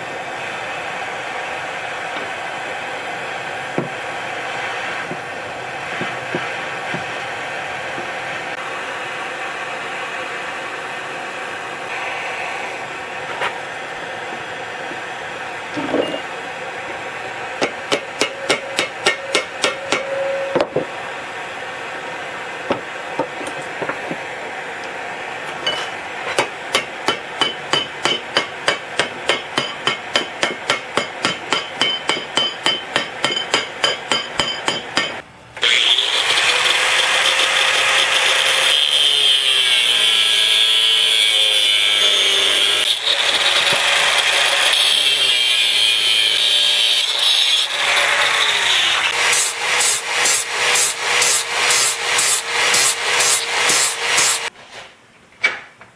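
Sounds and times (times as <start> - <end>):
angle grinder on steel: 27.4 - 54.5.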